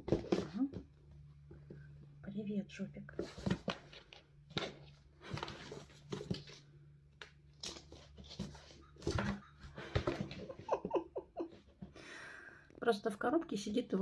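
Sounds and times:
kittens scratching cardboard box: 3.1s - 6.7s, 7.5s - 12.0s.

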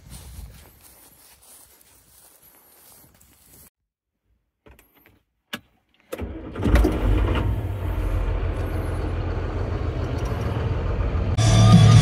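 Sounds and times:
engine cranking and running: 6.1s - 11.4s.

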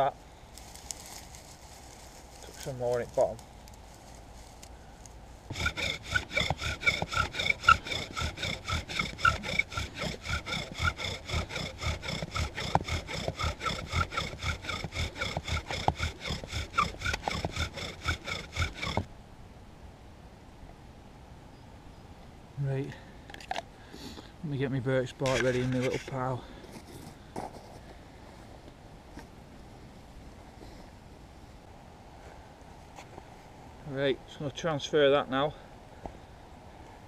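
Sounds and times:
bow drill squeaking: 5.5s - 19.1s, 25.2s - 26.2s.

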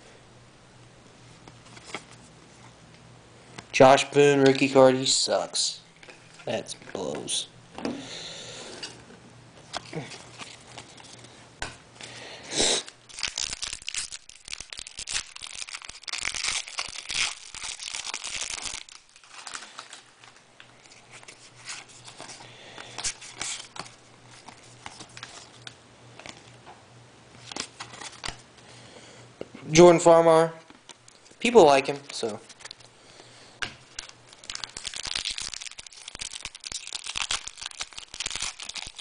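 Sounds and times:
wrapper tearing and rustling: 9.6s - 11.2s, 12.8s - 26.5s, 27.4s - 28.4s, 32.0s - 32.9s, 33.9s - 39.0s.

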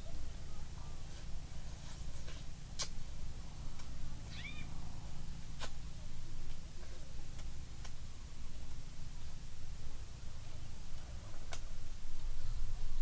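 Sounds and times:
animal call rising and falling: 4.3s - 4.7s.

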